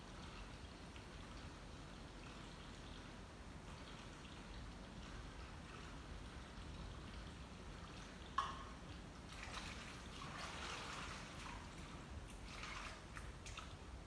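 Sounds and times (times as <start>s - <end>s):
water splashing and trickling: 0.0s - 14.0s
dishes clinking: 8.4s - 8.8s.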